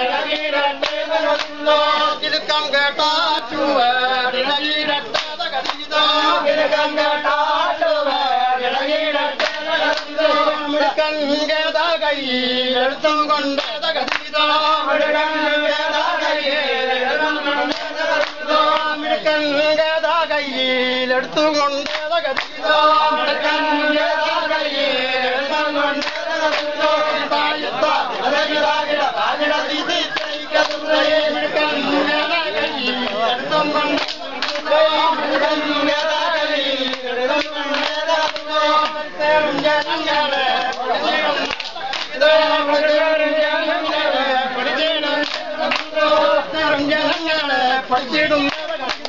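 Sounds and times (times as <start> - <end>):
men chanting together: 0.0 - 49.0
men singing in unison: 0.0 - 49.0
hand claps: 0.2 - 2.6, 4.6 - 6.7, 9.3 - 10.5, 13.4 - 14.4, 17.6 - 18.9, 21.2 - 22.8, 25.5 - 27.2, 30.0 - 31.0, 33.0 - 34.7, 35.3 - 42.2, 45.2 - 46.2, 47.0 - 47.4, 48.0 - 49.0.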